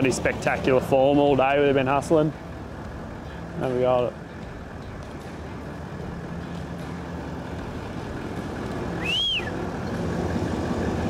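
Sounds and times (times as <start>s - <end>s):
vehicle engine running: 0.0s - 11.0s
short high chirp: 9.0s - 9.6s.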